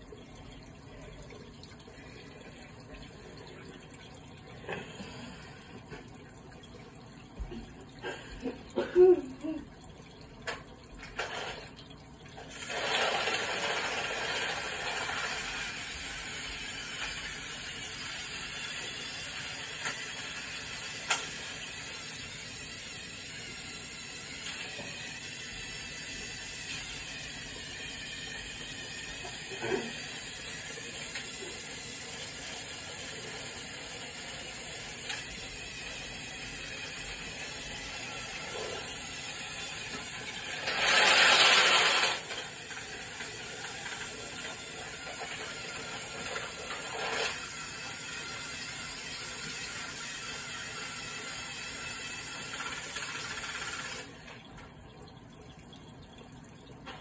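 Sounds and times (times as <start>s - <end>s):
microwave oven running: 0.0s - 57.0s
tinfoil sparking hiss: 12.5s - 17.6s.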